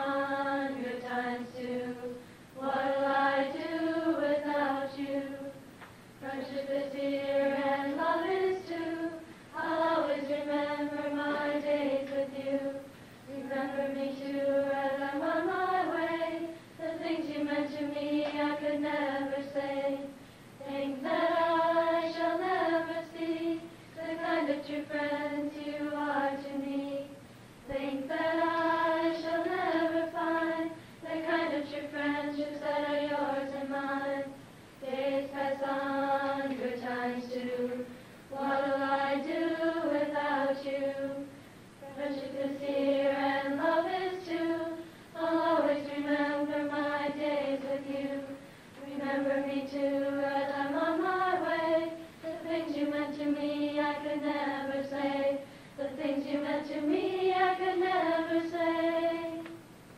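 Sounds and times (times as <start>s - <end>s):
group of voices singing: 0.0s - 5.6s, 6.2s - 59.6s.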